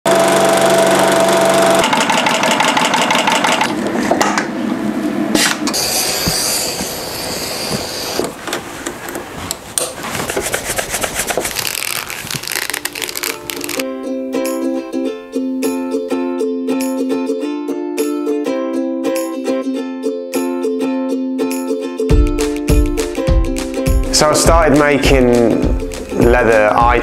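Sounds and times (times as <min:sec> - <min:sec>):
sewing machine stitching leather: 0:00.1 - 0:03.7
leather rubbing and clicking: 0:09.9 - 0:13.8.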